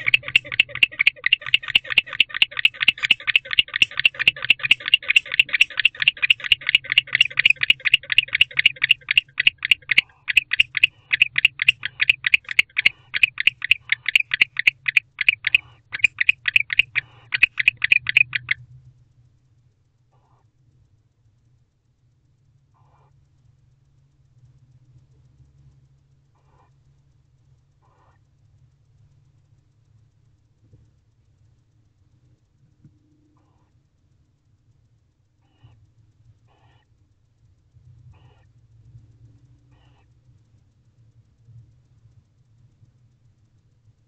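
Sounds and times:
barn owl calling: 0:00.0 - 0:18.6.

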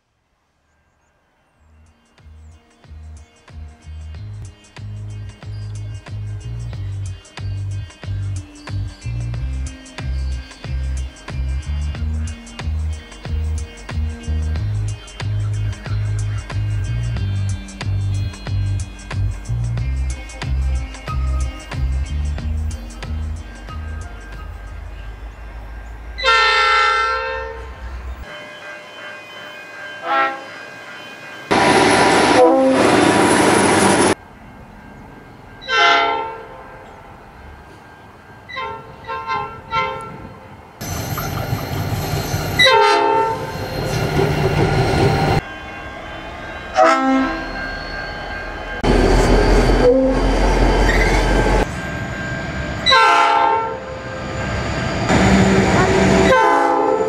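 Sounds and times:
passing train rumble and wheel noise: 0:00.7 - 0:57.0
locomotive horn blasts: 0:26.0 - 0:30.7, 0:31.5 - 0:33.3, 0:35.6 - 0:37.0, 0:38.5 - 0:40.4, 0:42.6 - 0:43.6, 0:45.3 - 0:47.7, 0:48.8 - 0:51.2, 0:52.8 - 0:54.2, 0:55.1 - 0:57.0.

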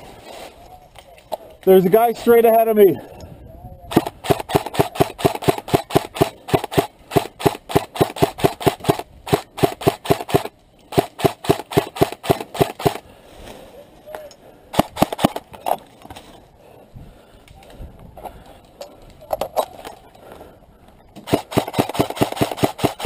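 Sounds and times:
airsoft rifle firing: 0:03.9 - 0:13.0, 0:14.7 - 0:15.5, 0:21.2 - 0:23.0.

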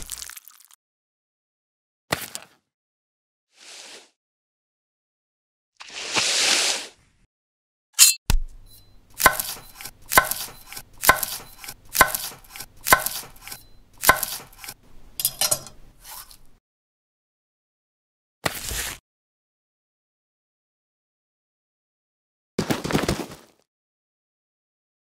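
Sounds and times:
knife chopping on wooden board: 0:08.3 - 0:14.8.

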